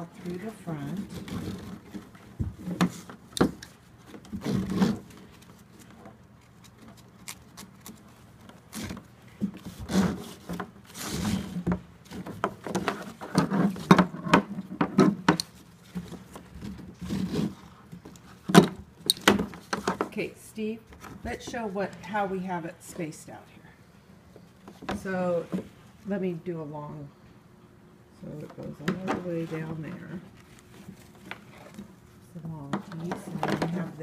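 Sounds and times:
nylon webbing rubbing on plastic: 0.2s - 14.3s, 15.0s - 18.4s.

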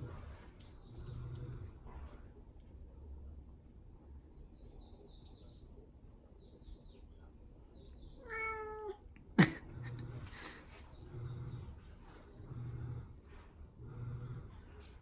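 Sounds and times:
cat meowing: 8.2s - 9.0s.

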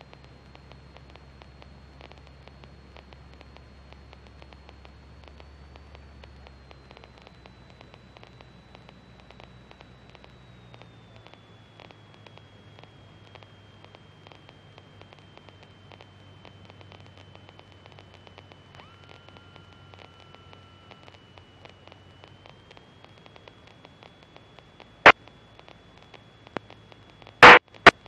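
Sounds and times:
faint radio static hiss: 0.0s - 28.0s
steady high whine: 0.0s - 28.0s
rapid ticking interference: 21.5s - 28.0s.

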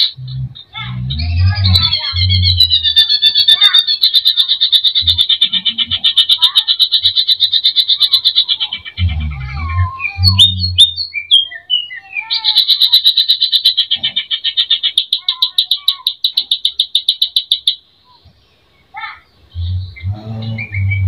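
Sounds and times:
low rough buzz: 0.0s - 2.6s
bird rattling trill: 1.8s - 8.7s, 12.4s - 17.8s.

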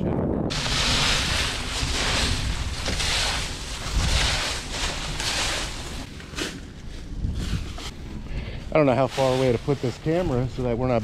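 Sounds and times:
wind rumbling on microphone: 0.0s - 11.0s
footsteps crunching dry leaves: 0.5s - 8.0s.

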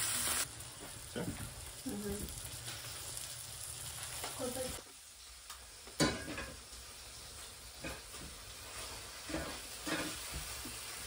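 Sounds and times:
plates and utensils clattering: 6.0s - 6.6s, 7.8s - 10.8s.

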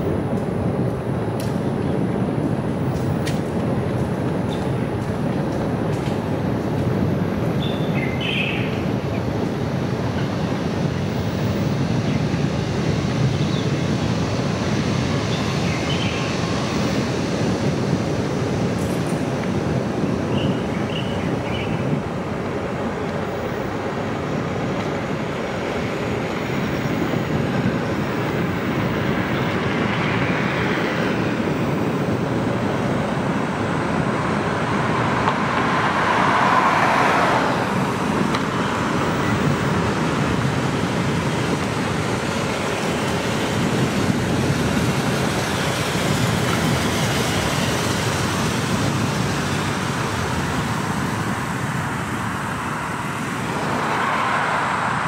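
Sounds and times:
car road and tyre noise: 0.0s - 55.0s
car passing: 26.0s - 55.0s.

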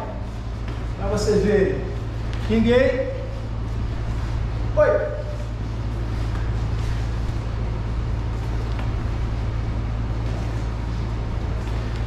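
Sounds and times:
constant hum: 0.0s - 12.0s.

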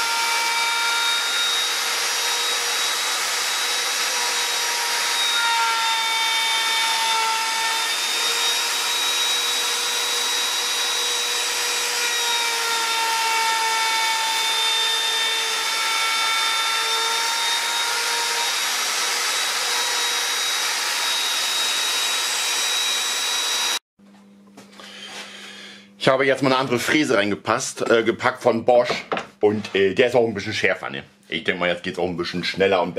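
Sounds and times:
router whining cutting wood: 0.0s - 23.8s.

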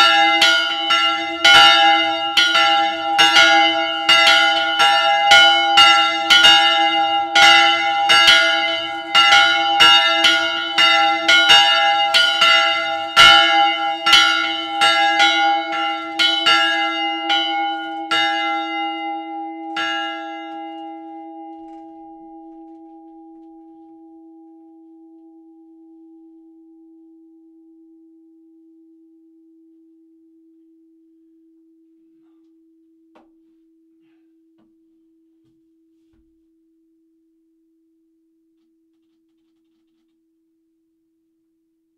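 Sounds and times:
church bells ringing: 0.0s - 26.4s
low bell hum tone: 0.0s - 33.1s.

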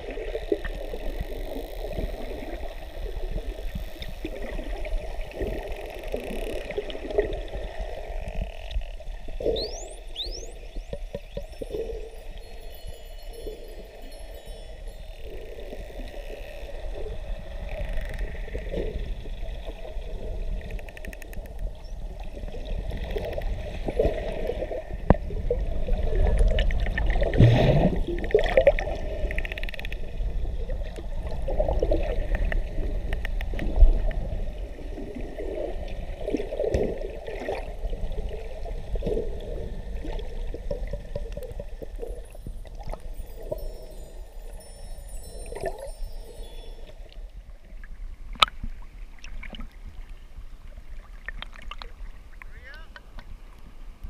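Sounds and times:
underwater gurgling and sloshing: 0.0s - 54.0s
wavering squeaky tones: 9.5s - 16.8s, 42.3s - 47.2s.

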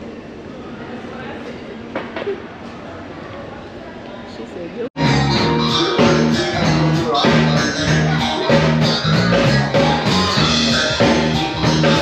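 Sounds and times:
drum kit beat: 5.0s - 12.0s
rock band guitar: 5.0s - 12.0s.

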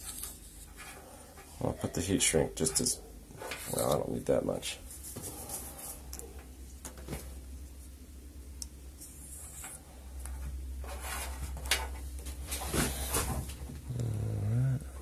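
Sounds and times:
steady low hum: 0.0s - 15.0s
handling rustles and knocks: 4.8s - 7.8s, 9.0s - 13.9s
low murmur of a voice: 13.9s - 15.0s.

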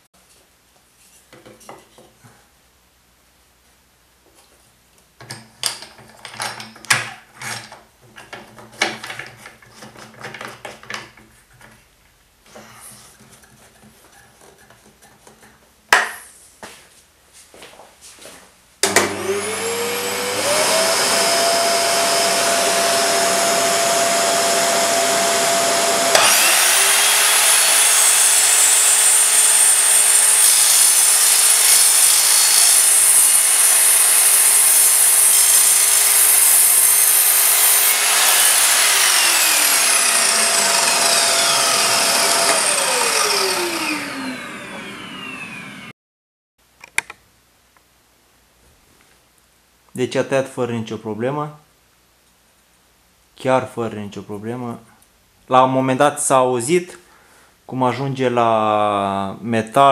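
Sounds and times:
mitre saw cutting wood: 18.8s - 45.9s
shop vacuum running: 18.8s - 45.9s
saw winding down whine: 18.9s - 45.9s.

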